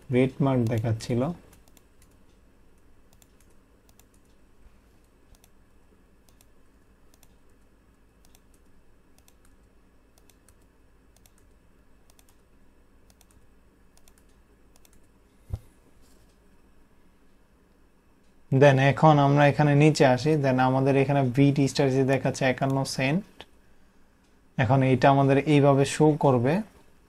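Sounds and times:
keyboard typing: 0.5 - 2.4, 3.1 - 4.4, 5.3 - 5.6, 6.2 - 15.2.

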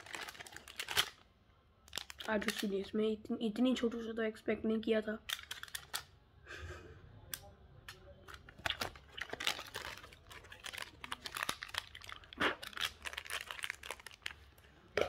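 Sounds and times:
plastic wrapper crinkling and tearing: 0.0 - 1.2, 1.8 - 2.9, 5.2 - 6.1, 8.2 - 14.7.

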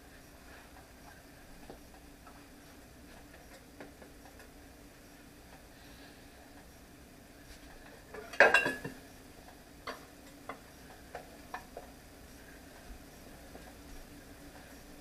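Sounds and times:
metal utensil clattering on pot: 8.2 - 9.0.

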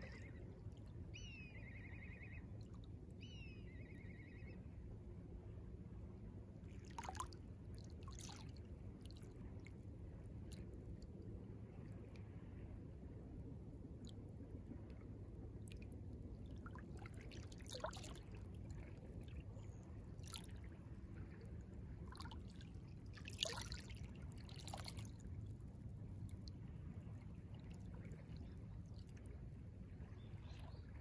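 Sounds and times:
small waves lapping: 6.6 - 11.1, 15.6 - 25.7.

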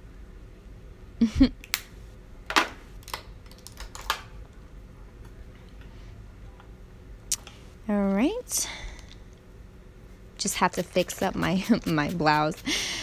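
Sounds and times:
clicks and rustles: 2.6 - 4.6.

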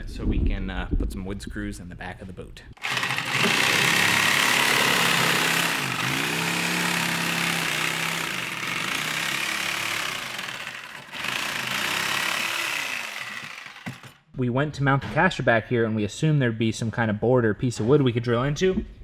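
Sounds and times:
reciprocating saw cutting foam: 2.8 - 14.2.

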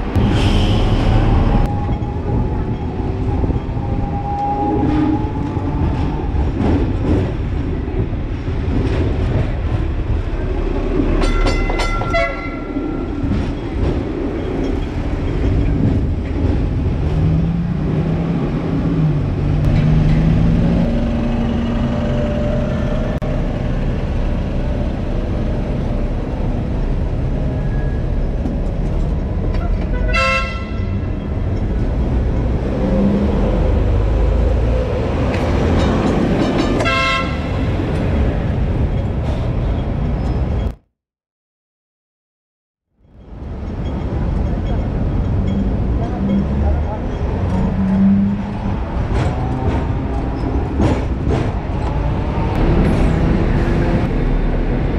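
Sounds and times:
tram wheels rumbling on rails: 0.0 - 40.8, 43.0 - 54.9
tram bell ringing: 11.1 - 13.8, 20.7 - 26.8, 43.0 - 48.1.

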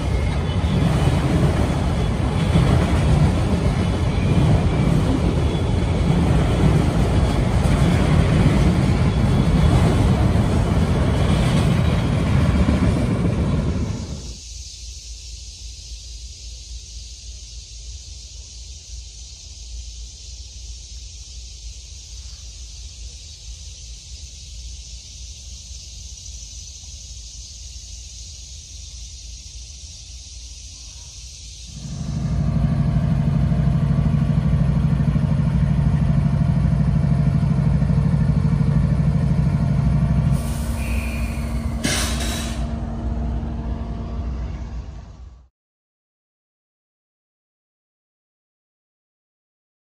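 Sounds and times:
train wheels rumbling on rail: 0.0 - 14.5, 15.8 - 45.5
high hiss: 13.2 - 35.6, 36.6 - 45.3.

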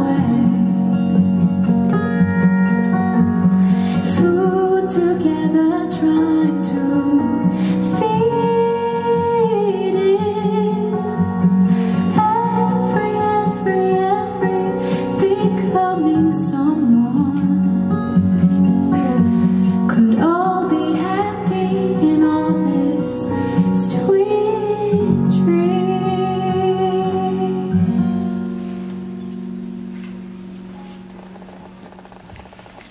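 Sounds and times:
woman singing into microphone: 0.0 - 1.0, 3.8 - 18.0, 18.9 - 28.5
guitar accompaniment: 0.0 - 32.9.

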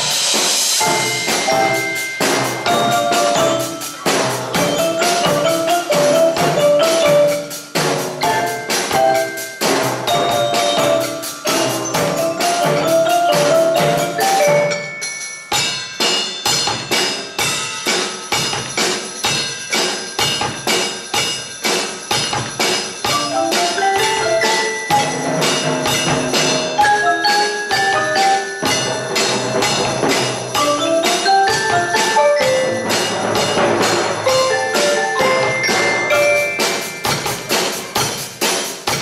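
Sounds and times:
drums and struck percussion: 0.0 - 39.0
marimba melody: 0.8 - 15.5, 23.0 - 38.2.

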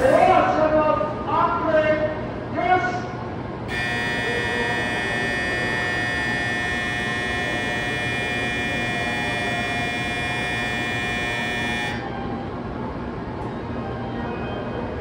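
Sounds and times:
low station rumble: 0.0 - 15.0
high electronic departure bell: 3.7 - 12.0.

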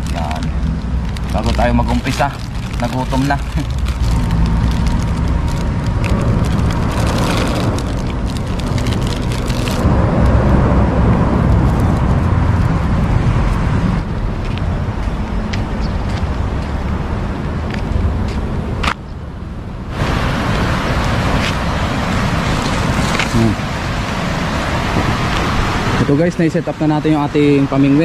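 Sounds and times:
plastic wrapper crinkling: 0.0 - 9.9
road traffic rumble: 0.0 - 28.0.

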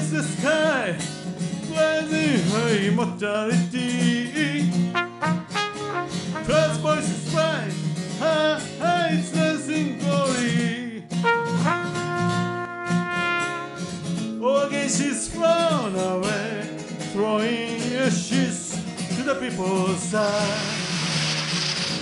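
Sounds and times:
man singing: 0.0 - 21.3
acoustic guitar: 0.0 - 22.0
cornet playing: 4.9 - 7.1, 11.2 - 14.0.

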